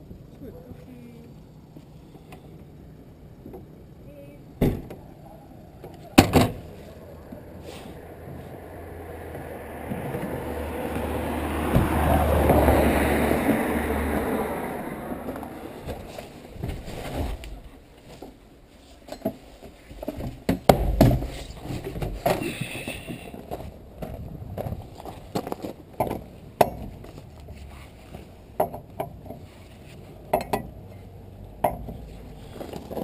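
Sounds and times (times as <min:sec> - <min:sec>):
vehicle passing: 0:06.7 - 0:16.6
knocks and clatter of handling: 0:15.3 - 0:30.7.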